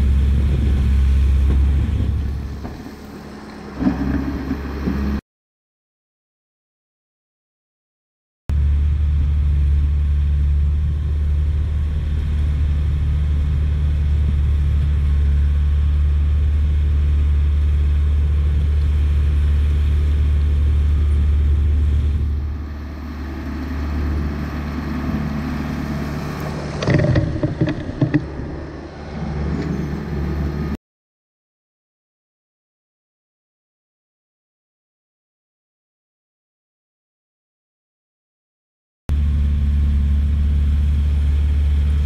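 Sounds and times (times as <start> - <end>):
bulldozer diesel engine under load: 0.0 - 5.2, 8.5 - 30.8, 39.1 - 42.0.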